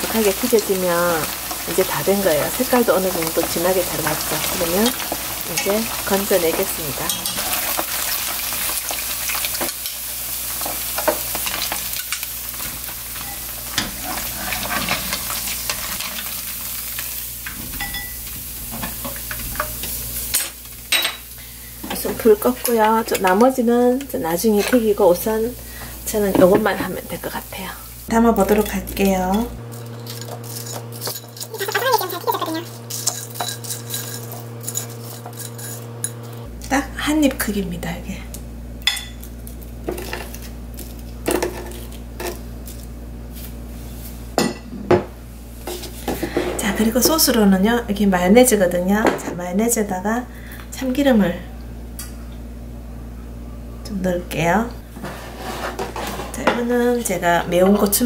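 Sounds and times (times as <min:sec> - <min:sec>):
hot oil sizzling in a wok: 0:00.0 - 0:36.2
skimmer scraping and tapping pan: 0:28.4 - 0:36.4, 0:54.9 - 0:56.6.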